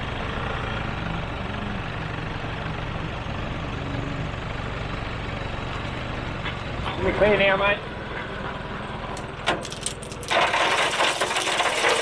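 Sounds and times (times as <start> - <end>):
truck engine running: 0.0 - 12.0
rock load being dumped: 9.4 - 12.0.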